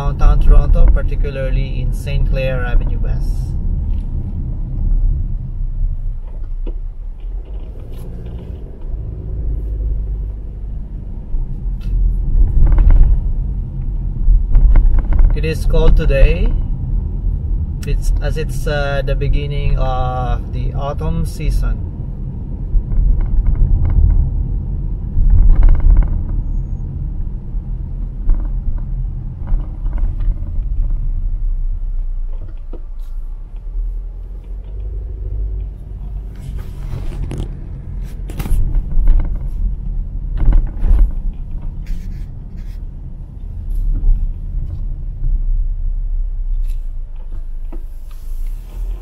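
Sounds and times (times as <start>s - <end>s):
car road and engine rumble: 0.0s - 49.0s.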